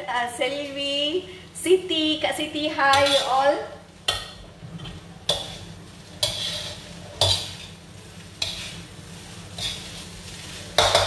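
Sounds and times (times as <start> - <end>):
rice sizzling: 0.0 - 11.0
metal spatula scraping wok: 2.8 - 11.0.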